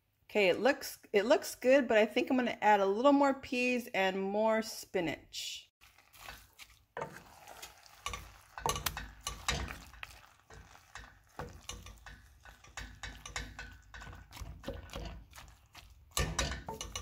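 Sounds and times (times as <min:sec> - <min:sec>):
wooden spoon stirring pasta in pan: 0:05.8 - 0:17.0
spoon knocking and scraping pan: 0:06.1 - 0:17.0.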